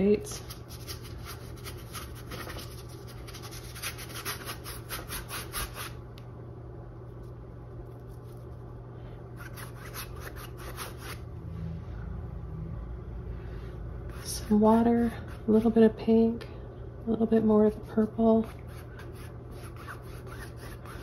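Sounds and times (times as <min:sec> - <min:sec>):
steady low hum: 0:00.0 - 0:21.0
paintbrush scrubbing on canvas: 0:17.7 - 0:21.0.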